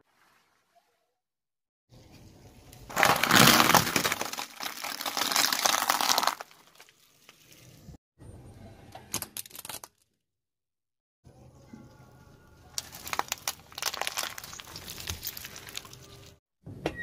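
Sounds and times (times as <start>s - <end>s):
tire crushing cardboard box: 2.9s - 6.5s
sharp cracks under tire: 2.9s - 6.9s, 12.8s - 16.1s.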